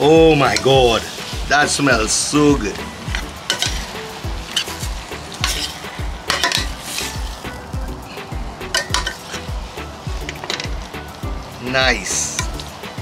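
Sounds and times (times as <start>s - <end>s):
background music with beat: 0.0s - 13.0s
food sizzling: 0.0s - 13.0s
metal spoon scraping a pan: 2.8s - 7.6s, 8.2s - 9.6s, 10.2s - 11.0s.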